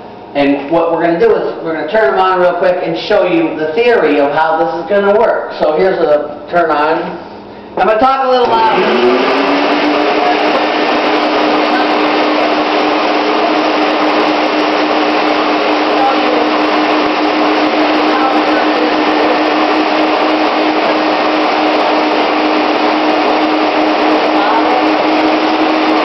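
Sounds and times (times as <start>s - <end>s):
vacuum cleaners running: 8.3s - 26.0s.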